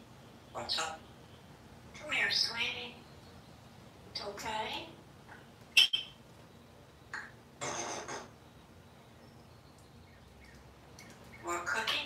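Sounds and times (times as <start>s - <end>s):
parrot chirping: 5.8s - 6.2s.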